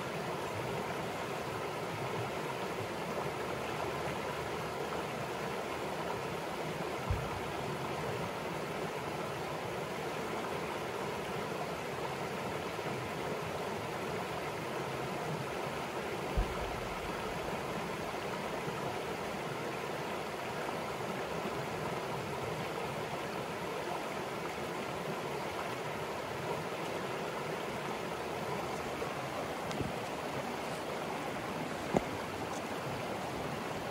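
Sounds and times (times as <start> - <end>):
river rushing over rocks: 0.0 - 33.9
low thump: 7.1 - 7.3, 16.4 - 16.8.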